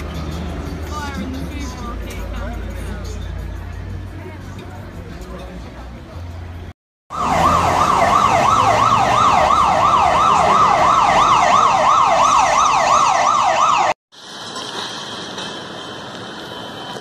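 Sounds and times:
siren yelping: 7.1s - 14.0s
steady background noise: 7.8s - 17.0s.

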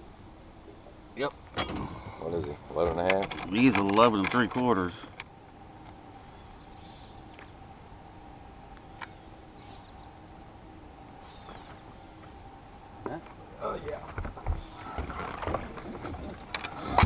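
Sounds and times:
high-pitched insect buzzing: 3.5s - 16.9s
faint bird chirps: 6.3s - 7.3s, 11.2s - 11.8s.

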